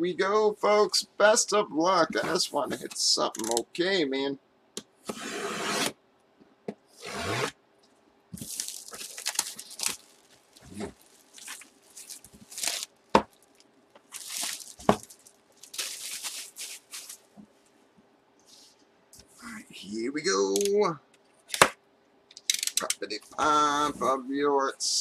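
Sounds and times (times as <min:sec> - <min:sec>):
cardboard scraping and tearing: 0:05.1 - 0:05.9, 0:07.0 - 0:07.6, 0:08.4 - 0:12.9, 0:14.1 - 0:17.2
packing tape slit and peeled: 0:08.4 - 0:17.2.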